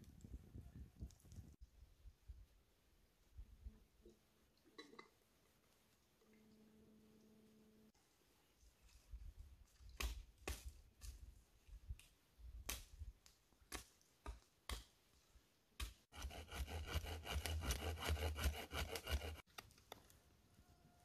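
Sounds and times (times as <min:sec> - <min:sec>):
knife scraping a stick: 0:15.8 - 0:19.5
hand saw cutting wood: 0:16.1 - 0:19.5.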